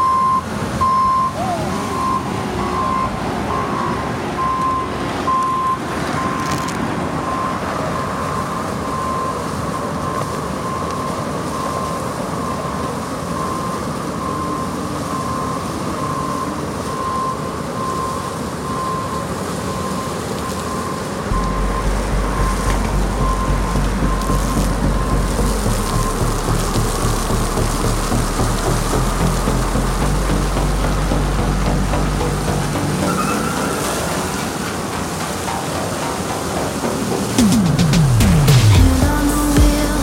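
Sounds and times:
backup alarm beeping: 0:00.0 - 0:38.5
deep loud rumble: 0:21.3 - 0:33.2
heavy diesel machinery running: 0:21.3 - 0:40.0.

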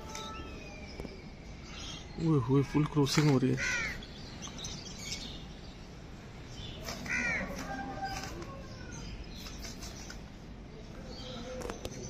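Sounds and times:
outdoor background hum: 0:00.0 - 0:12.0
crow cawing: 0:03.6 - 0:04.0, 0:07.0 - 0:07.6.

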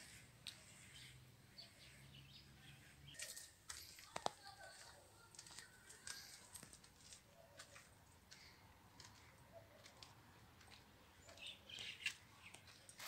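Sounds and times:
footsteps on steps and gravel: 0:03.1 - 0:13.0.

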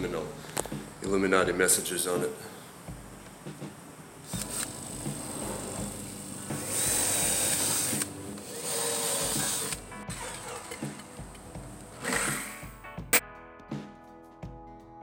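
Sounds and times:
cordless drill boring into wood: 0:05.8 - 0:11.0, 0:12.0 - 0:12.6.

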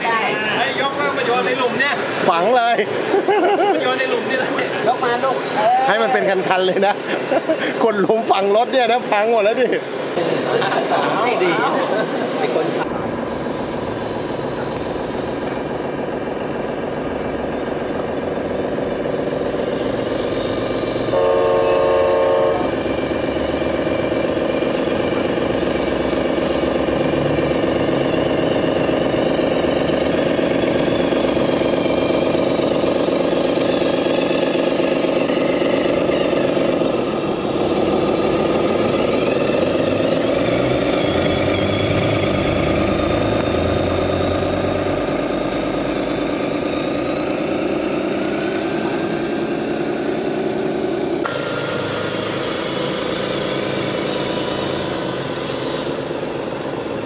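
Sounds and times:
toy truck diesel engine sound: 0:00.0 - 0:57.0
truck horn blast: 0:21.1 - 0:22.9.

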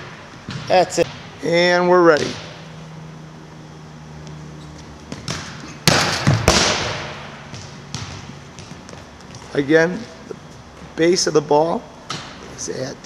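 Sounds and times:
volleyball slapping gym floor: 0:00.0 - 0:01.5, 0:02.1 - 0:02.7, 0:04.2 - 0:11.1.

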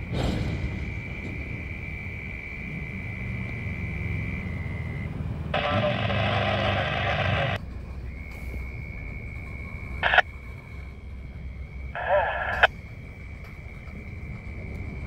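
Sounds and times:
thin high whine: 0:10.0 - 0:10.3, 0:11.9 - 0:12.7
train boxcars rumbling past: 0:12.7 - 0:15.0.

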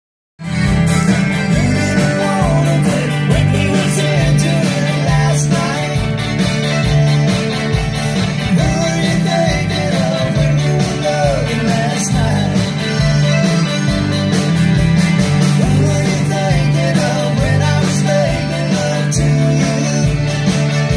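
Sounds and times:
button accordion: 0:00.4 - 0:19.0
heavy bass notes: 0:00.4 - 0:20.9
live band playing: 0:00.4 - 0:20.9
man singing: 0:01.4 - 0:06.2, 0:08.4 - 0:14.2, 0:15.6 - 0:20.7.

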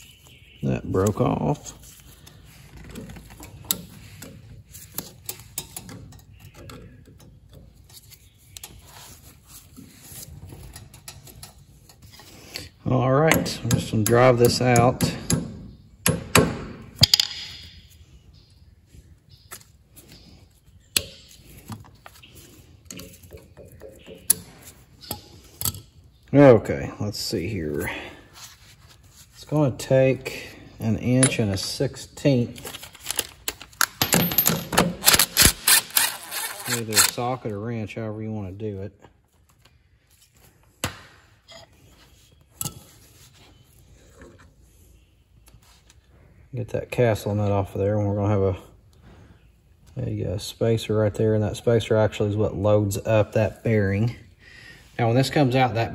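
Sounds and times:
tool handling noise: 0:31.1 - 0:37.5.

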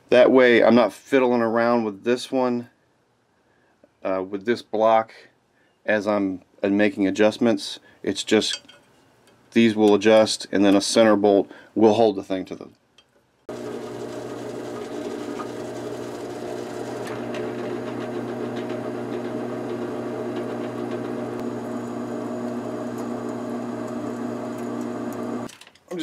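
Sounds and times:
drill press drilling metal: 0:13.5 - 0:25.5.

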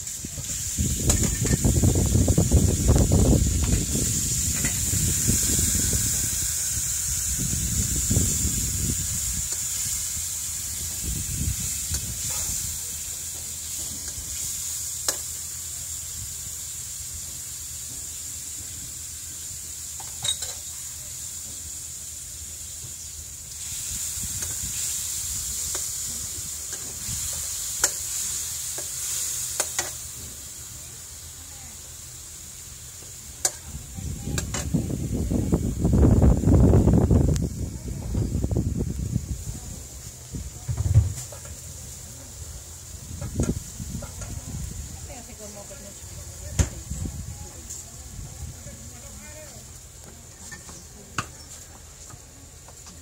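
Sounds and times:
food sizzling in a wok: 0:00.0 - 0:53.0
ladle clinking against wok: 0:20.0 - 0:20.7.

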